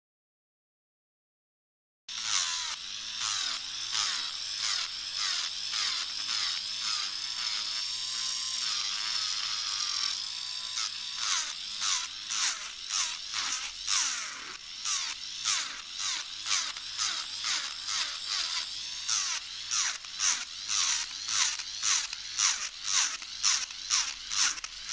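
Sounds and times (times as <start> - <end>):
drill bit scraping nail: 2.1 - 24.9
nail drill motor whine: 2.1 - 24.9.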